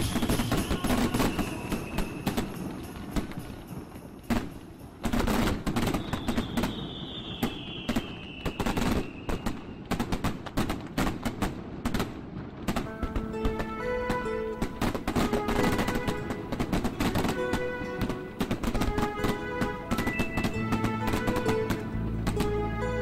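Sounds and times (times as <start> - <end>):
descending firework whistle: 0.0 - 10.3, 13.4 - 23.0
fireworks bangs and crackles: 0.0 - 23.0
music with held tones: 12.9 - 23.0.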